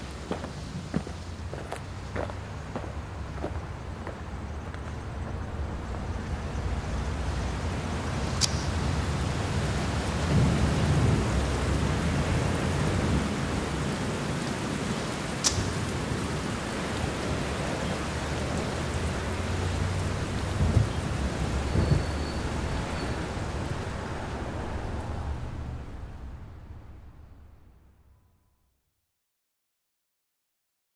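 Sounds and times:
steady rain: 0:00.0 - 0:27.8
thunder rumbling: 0:03.2 - 0:28.1.

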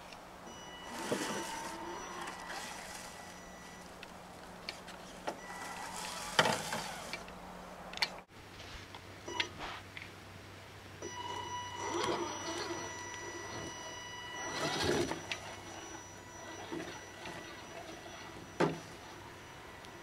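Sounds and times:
toy car electric motor whining: 0:00.8 - 0:03.9, 0:05.4 - 0:07.3, 0:11.1 - 0:19.9.

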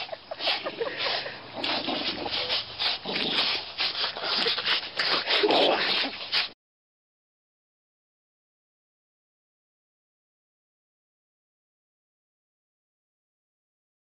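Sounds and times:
dogs growling: 0:00.0 - 0:06.6
rasping rope scrapes: 0:00.0 - 0:06.6.

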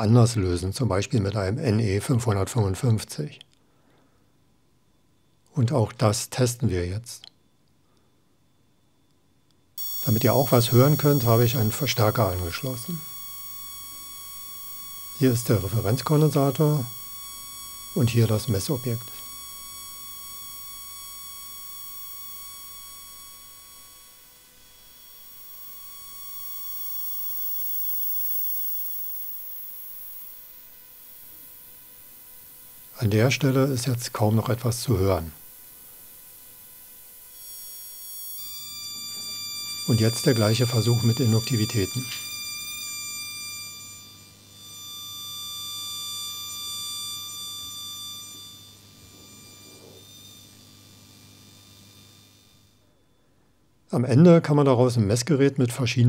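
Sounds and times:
square-wave tone: 0:09.8 - 0:52.8.

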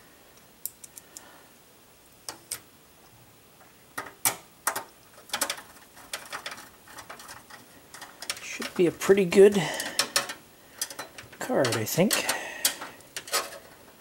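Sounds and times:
metal clicks and taps: 0:09.8 - 0:13.6.

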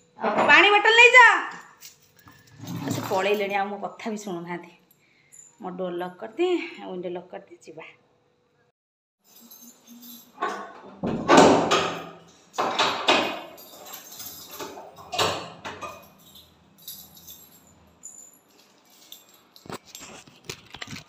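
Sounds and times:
wooden door knocking and rattling: 0:11.0 - 0:13.5.

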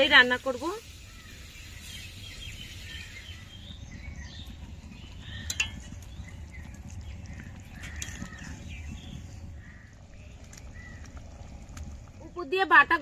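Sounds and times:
small birds chirping: 0:00.0 - 0:13.0
steady low rumble: 0:02.2 - 0:13.0.

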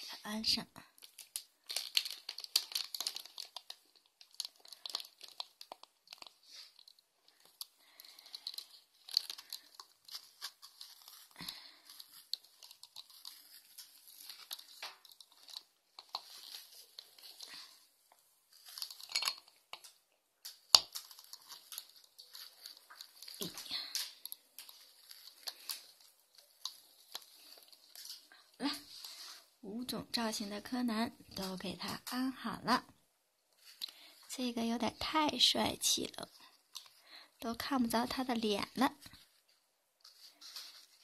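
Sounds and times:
plastic rustling and clicking: 0:00.9 - 0:29.4, 0:33.5 - 0:37.0.

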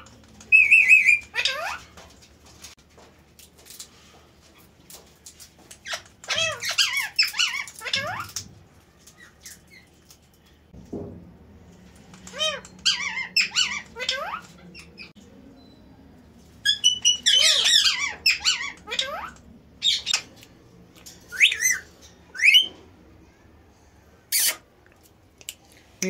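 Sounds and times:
parakeets squeaky calls: 0:00.5 - 0:01.8, 0:05.8 - 0:08.4, 0:12.3 - 0:15.1, 0:16.6 - 0:20.3, 0:22.4 - 0:22.7.

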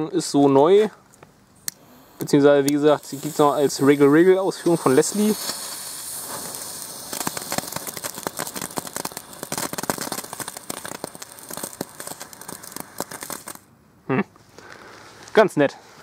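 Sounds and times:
firework fountain crackling: 0:01.7 - 0:13.7.

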